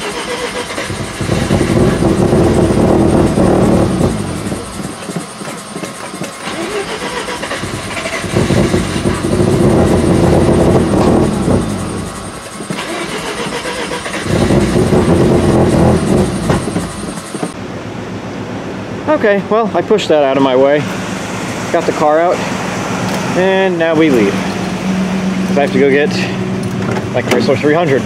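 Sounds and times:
engine starter cranking: 0.0s - 17.6s.

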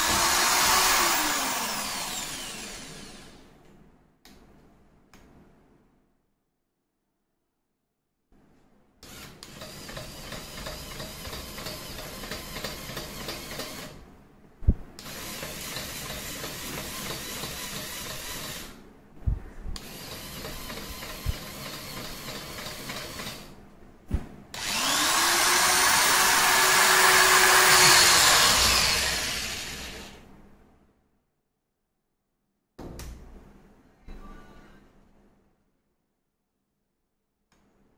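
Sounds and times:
electric drill whining: 0.0s - 3.4s, 9.0s - 14.0s, 24.6s - 30.2s
small electric motors running: 24.6s - 30.2s.

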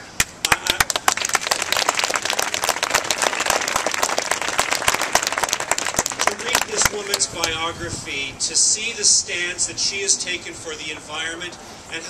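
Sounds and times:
crowd applauding: 0.4s - 7.2s.

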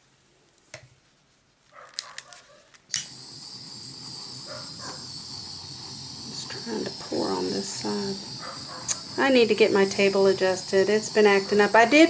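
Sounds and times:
torch igniter clicks: 1.9s - 12.0s
gas torch hissing: 2.9s - 12.0s.

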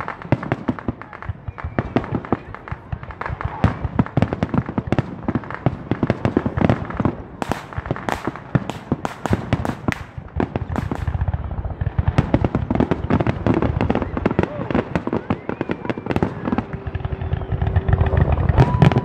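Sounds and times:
fireworks bursting: 0.0s - 19.0s.

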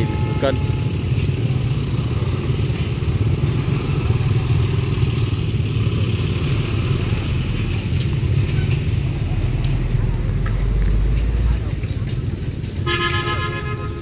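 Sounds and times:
motorbike engines passing: 0.0s - 14.0s.

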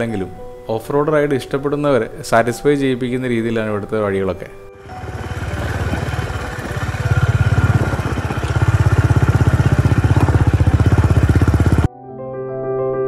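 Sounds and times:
motorcycle engine running: 4.8s - 11.9s.

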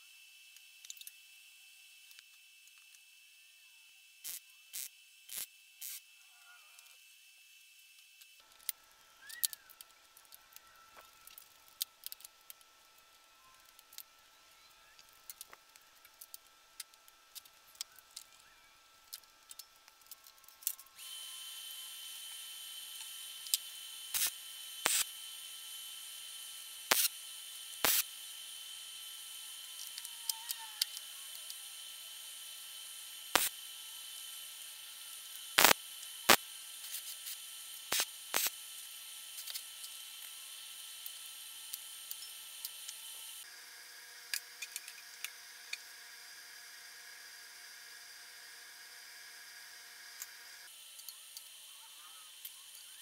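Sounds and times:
loud welding tacks: 4.2s - 6.0s, 22.1s - 43.4s.

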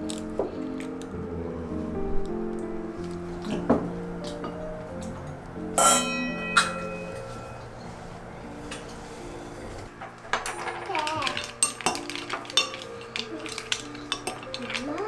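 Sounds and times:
soft background music: 0.0s - 15.0s
spoon clinking on shells: 10.4s - 15.0s.

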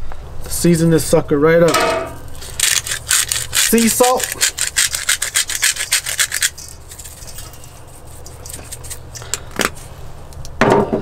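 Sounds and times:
salt grinder scraping clicks: 2.4s - 7.2s.

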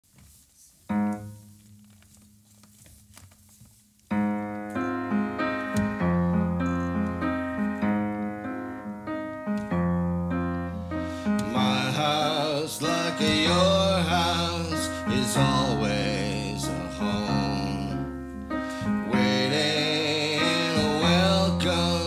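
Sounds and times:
upright piano chords: 0.8s - 2.2s, 4.0s - 22.0s.

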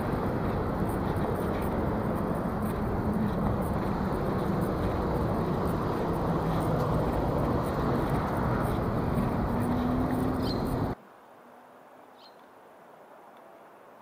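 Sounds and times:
vehicle engine rumble: 0.0s - 11.0s.

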